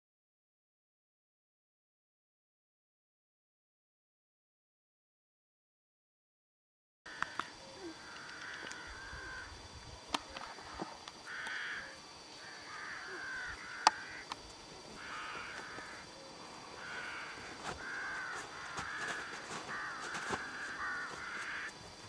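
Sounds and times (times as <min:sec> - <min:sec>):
bird harsh calls: 0:14.9 - 0:21.8.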